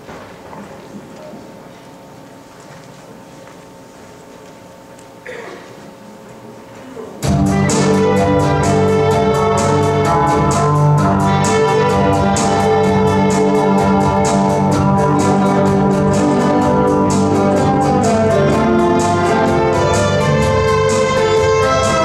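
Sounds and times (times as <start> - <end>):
band with strings playing rock: 7.2 - 22.0.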